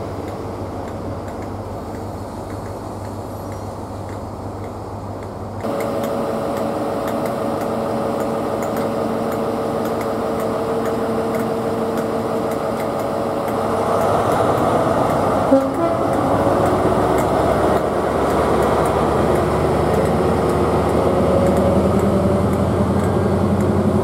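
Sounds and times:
diesel locomotive engine humming: 0.0 - 24.0
train coaches rolling past: 0.0 - 24.0.

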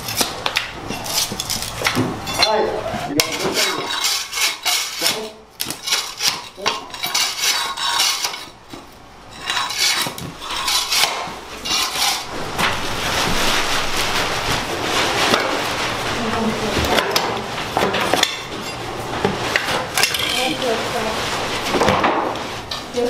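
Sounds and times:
scraper scraping concrete floor: 0.0 - 22.7
plastic trash bag rustling: 11.3 - 23.0.

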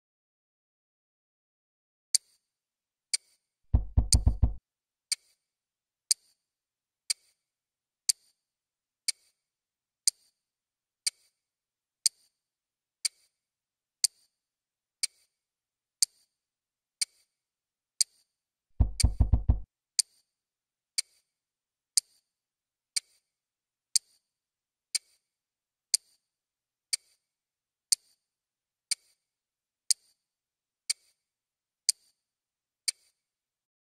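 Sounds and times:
watch ticking: 3.7 - 4.6, 18.8 - 19.6.

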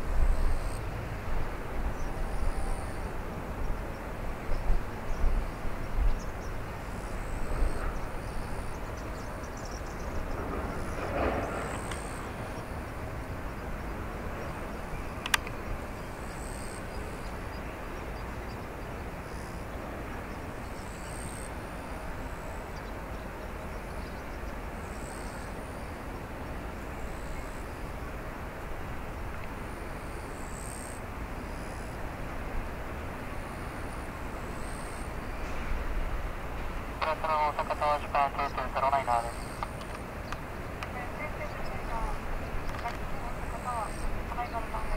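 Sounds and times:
airliner taxiing rumble: 0.0 - 30.3, 31.3 - 44.9
sharp click: 15.2 - 15.6.

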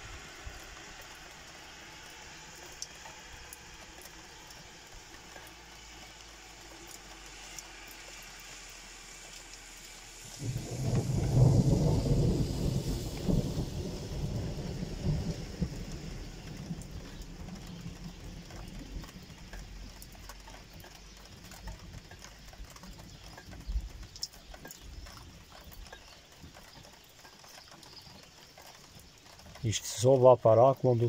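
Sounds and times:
light rain: 0.0 - 31.0
thunder rumbling: 10.3 - 20.1
faint ticks: 16.4 - 31.0.

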